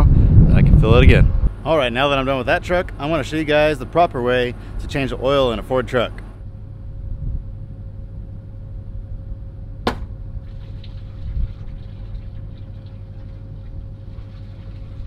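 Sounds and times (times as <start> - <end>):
steady low rumble: 0.0 - 15.0
sharp crack: 9.9 - 10.2.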